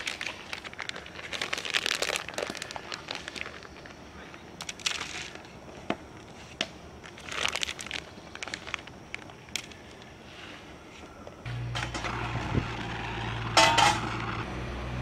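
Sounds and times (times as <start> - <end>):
plastic bag crinkling: 0.0 - 5.6, 7.0 - 10.0
steady low hum: 2.7 - 15.0.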